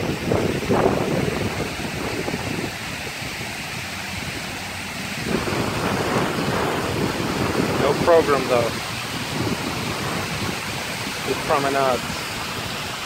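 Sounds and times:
water pouring down fountain: 0:00.0 - 0:13.0
wind buffeting microphone: 0:00.0 - 0:13.0.

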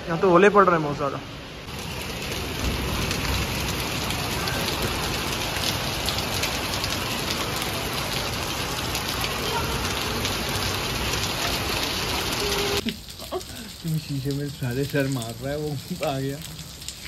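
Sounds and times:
hailstones striking concrete and plastic: 0:12.4 - 0:17.0.

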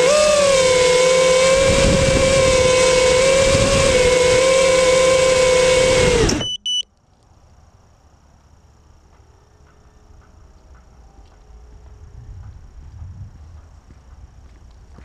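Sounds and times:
short high beeps: 0:06.3 - 0:06.9.

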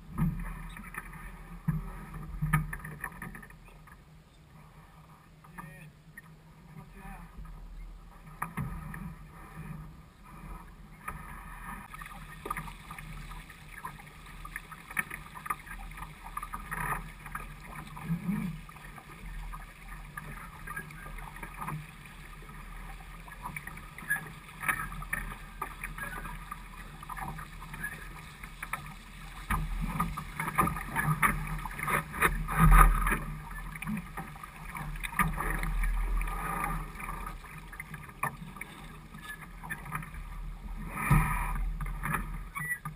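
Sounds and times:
water slapping against boat hull: 0:11.8 - 0:39.0.

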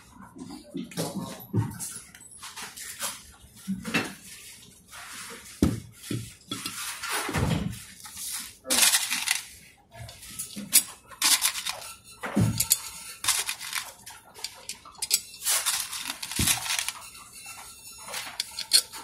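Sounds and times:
plastic and metal parts clicking: 0:08.7 - 0:09.4, 0:10.5 - 0:17.1, 0:18.1 - 0:19.0.

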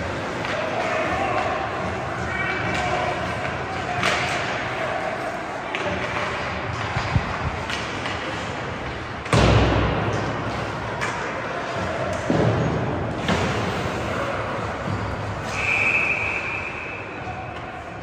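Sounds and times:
hockey sticks and puck knocking: 0:02.6 - 0:04.7, 0:05.7 - 0:13.6
slam against rink boards: 0:09.2 - 0:10.4, 0:12.2 - 0:14.0
high whistle: 0:15.4 - 0:17.2.

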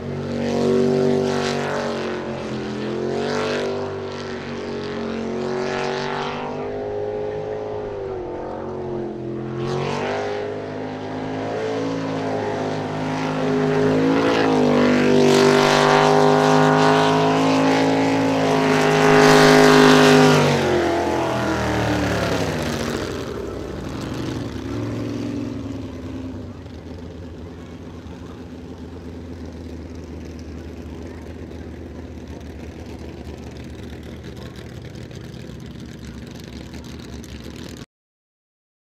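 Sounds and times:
jet boat engine running: 0:00.0 - 0:37.8.

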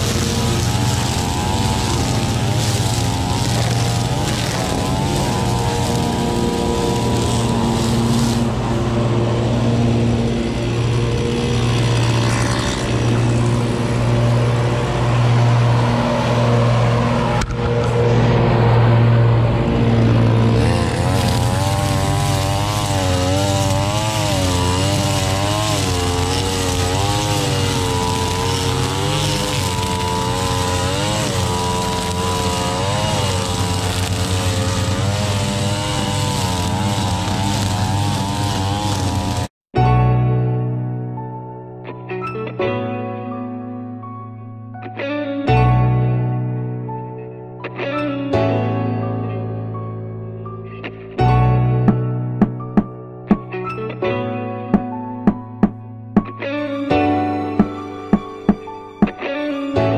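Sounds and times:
string trimmer engine revving: 0:00.0 - 0:39.5.

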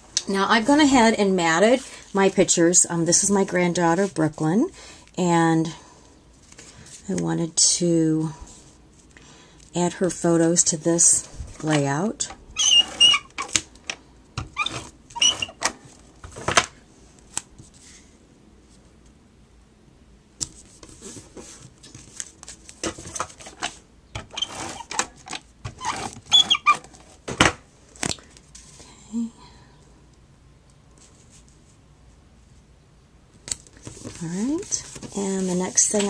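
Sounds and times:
adhesive applicator squeaky strokes: 0:12.6 - 0:13.4, 0:25.8 - 0:26.8
card and paper handling: 0:33.6 - 0:36.0.

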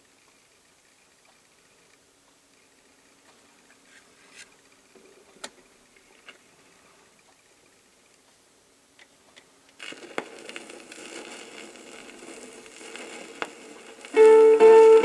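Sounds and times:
record hiss and crackle: 0:00.0 - 0:15.0
electric guitar instrumental: 0:14.2 - 0:15.0.

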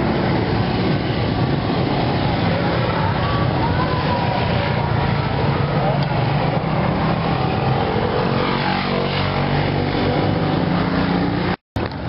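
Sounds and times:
road traffic noise: 0:00.0 - 0:12.0.

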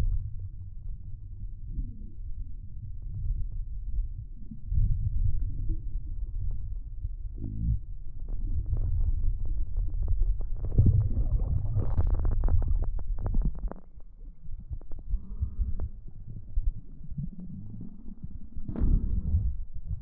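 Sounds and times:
muffled underwater rumble: 0:00.0 - 0:20.0
water moving at surface: 0:08.6 - 0:19.6
air bubbles popping: 0:10.2 - 0:13.9.

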